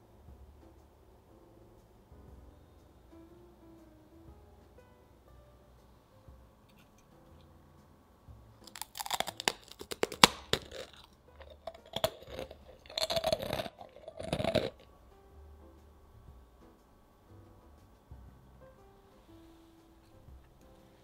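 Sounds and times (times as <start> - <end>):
cookie crunching: 8.6 - 14.9.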